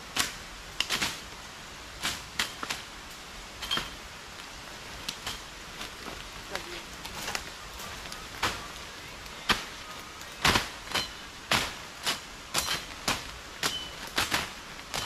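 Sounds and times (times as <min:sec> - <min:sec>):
machete chopping brush: 0:00.1 - 0:01.2, 0:10.4 - 0:15.0.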